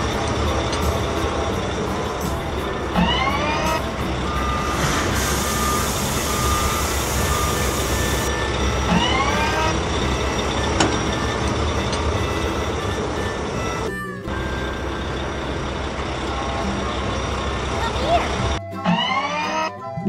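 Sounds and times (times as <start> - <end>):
diesel engine rumble: 0.0 - 19.2
hydraulic whine: 0.0 - 19.7
reversing beeps: 3.2 - 13.9
dirt pouring into truck bed: 4.6 - 6.2.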